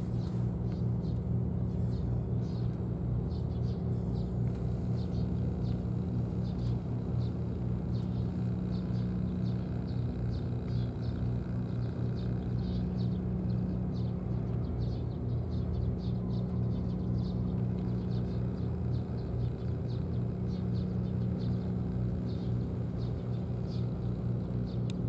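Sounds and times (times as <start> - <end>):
low mechanical hum: 0.0 - 25.0.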